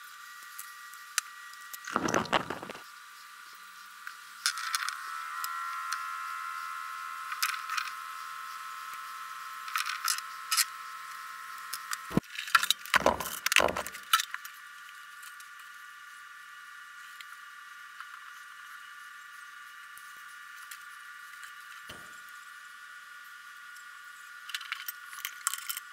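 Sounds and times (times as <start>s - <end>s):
knocks and bumps: 2.0s - 2.8s, 13.0s - 13.9s.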